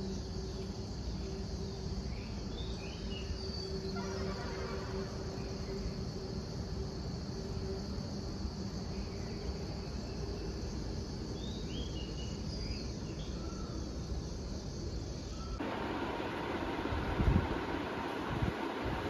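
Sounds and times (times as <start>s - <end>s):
crickets chirring: 0.0s - 19.0s.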